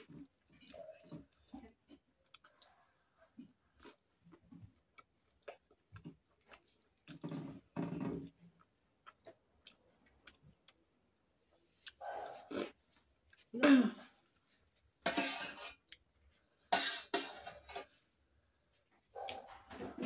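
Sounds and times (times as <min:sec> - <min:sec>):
person chewing: 0:00.0 - 0:10.9, 0:11.7 - 0:13.5.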